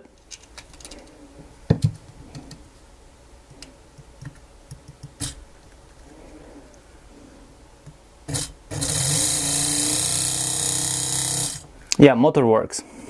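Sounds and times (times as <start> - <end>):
faint steady hum: 0.0 - 13.0
clicks and knocks of handled parts: 0.2 - 1.2.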